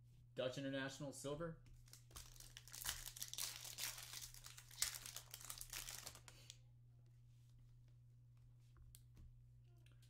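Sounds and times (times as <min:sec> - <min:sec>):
foil wrapper crinkling: 0:01.8 - 0:06.6.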